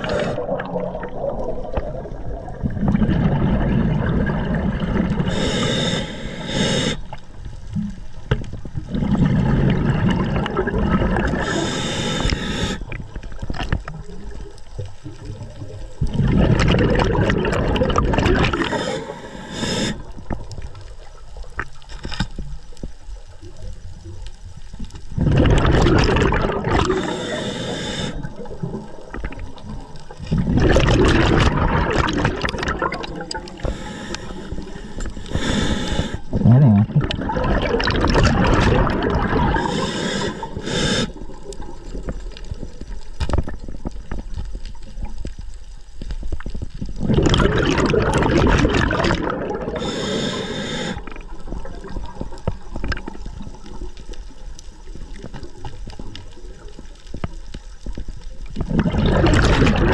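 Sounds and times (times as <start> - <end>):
underwater rushing and bubbling: 0.0 - 59.9
high hiss: 5.3 - 7.2, 11.4 - 12.9, 18.6 - 20.1, 26.9 - 28.3, 33.5 - 36.3, 39.6 - 41.2, 49.8 - 51.1.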